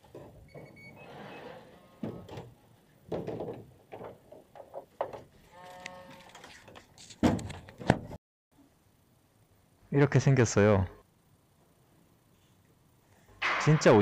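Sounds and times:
handling rustles and knocks: 2.0s - 5.5s.

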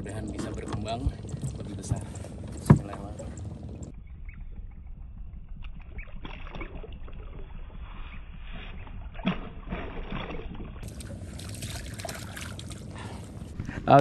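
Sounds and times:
water splashing against boat: 0.0s - 3.9s, 8.4s - 13.5s
low steady rumble: 0.0s - 14.0s
fish splashing: 5.8s - 7.8s, 8.6s - 13.5s.

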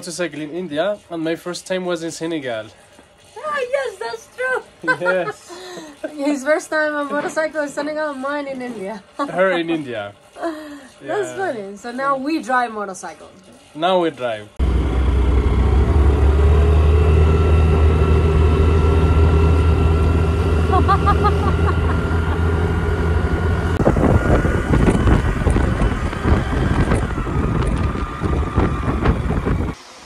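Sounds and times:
scooter engine droning: 14.6s - 30.0s
wind buffeting microphone: 22.8s - 29.8s.

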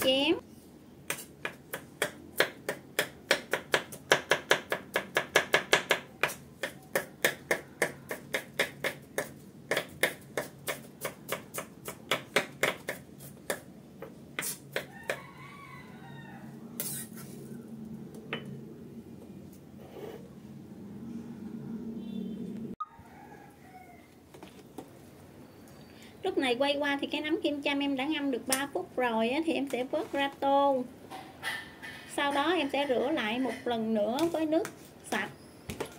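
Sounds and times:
knife chopping on wooden board: 1.1s - 13.6s.

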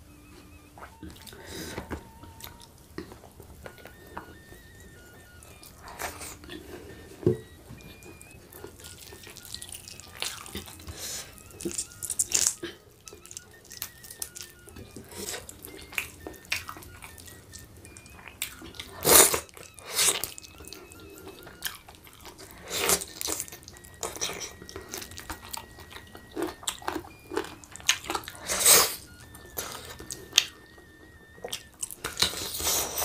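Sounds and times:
moist chewing clicks: 0.2s - 33.0s
lip smacks: 7.2s - 33.0s.

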